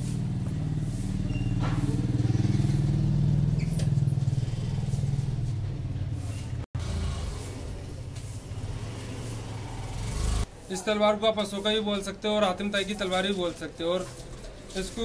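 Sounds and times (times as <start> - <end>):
vehicle engine rumbling: 0.0 - 10.5.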